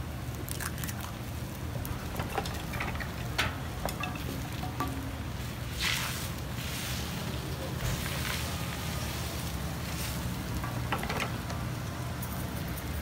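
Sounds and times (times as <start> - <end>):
egg cracking: 0.3 - 5.4.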